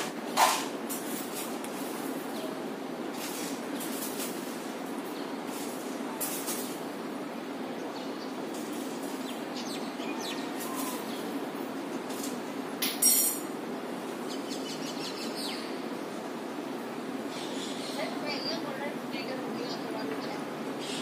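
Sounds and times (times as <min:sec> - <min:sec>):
low background hum: 0:00.0 - 0:21.0
faint bird calls: 0:09.6 - 0:11.4, 0:17.3 - 0:18.7, 0:19.7 - 0:21.0.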